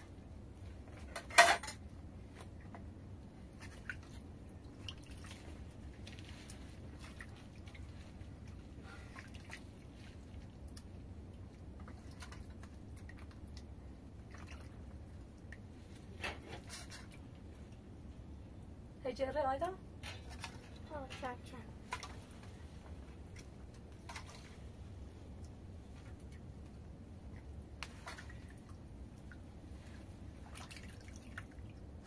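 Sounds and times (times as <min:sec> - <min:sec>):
hands washing tomatoes in water: 0:20.4 - 0:32.0.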